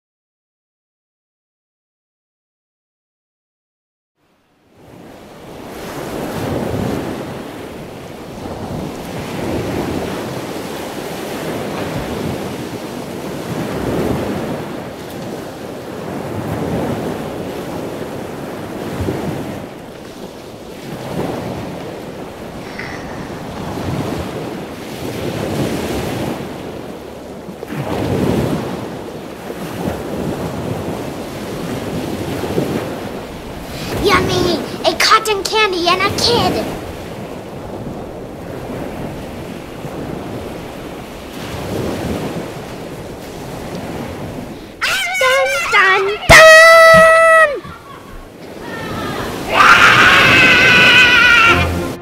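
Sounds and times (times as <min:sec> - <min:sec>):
rushing wind-like noise: 0:04.8 - 0:27.0.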